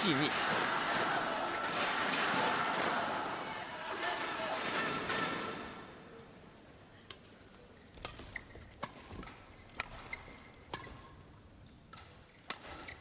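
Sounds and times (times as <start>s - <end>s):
racket hitting shuttlecock: 0.5s - 3.4s, 8.0s - 11.2s, 11.9s - 13.0s.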